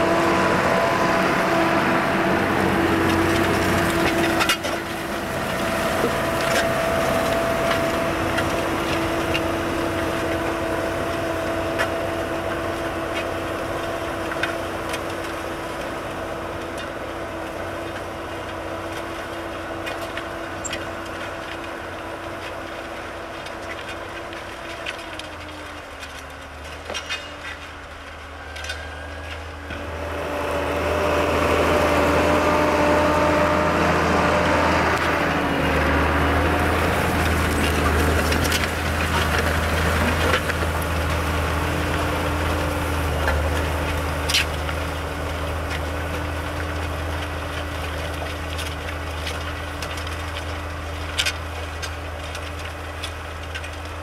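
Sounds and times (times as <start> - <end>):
tractor engine running: 0.0 - 54.0
clicks and knocks of harrow discs: 17.8 - 29.9, 36.5 - 54.0.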